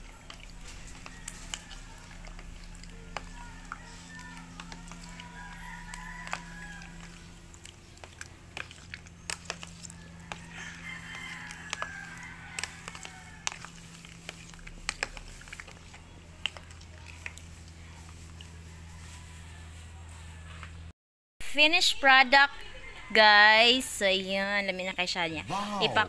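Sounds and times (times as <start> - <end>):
chickens calling: 0.0 - 16.6
spoon stirring in plastic tub: 0.0 - 19.1.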